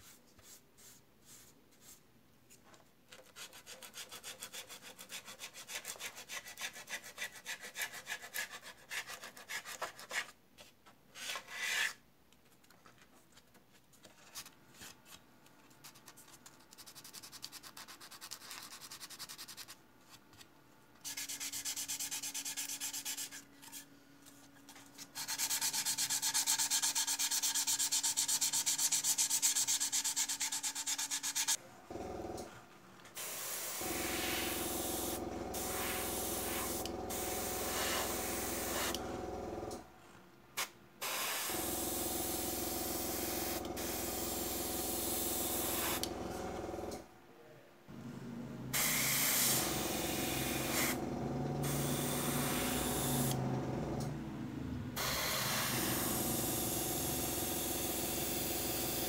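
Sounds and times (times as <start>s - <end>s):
sanding sponge rubbing plastic: 15.8s - 19.8s, 21.1s - 23.8s, 25.2s - 31.6s.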